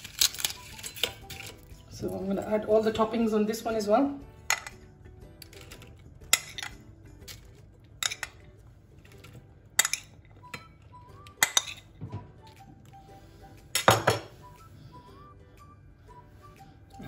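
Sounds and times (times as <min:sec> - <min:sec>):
metal spoon clinking on ceramic dishes: 0:00.1 - 0:01.7, 0:04.4 - 0:06.9, 0:08.0 - 0:08.6, 0:09.2 - 0:11.9, 0:13.8 - 0:14.3
dishes clattering: 0:04.4 - 0:06.9, 0:07.9 - 0:12.3, 0:13.8 - 0:14.3.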